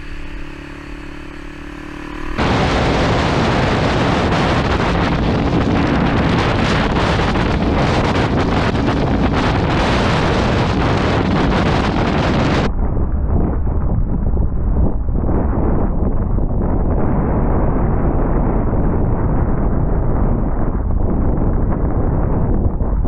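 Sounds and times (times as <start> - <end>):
motorcycle engine running: 0.0 - 12.7
wind rush buffeting microphone: 0.0 - 23.0.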